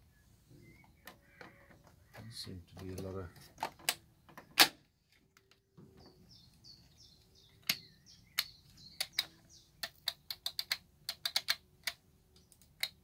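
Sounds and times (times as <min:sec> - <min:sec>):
bird chirping faintly: 0:00.0 - 0:04.6, 0:05.3 - 0:10.5.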